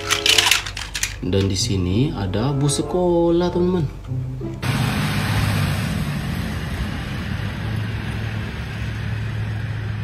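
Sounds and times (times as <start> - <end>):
road noise: 3.6 - 10.0
bus engine hum: 4.0 - 10.0.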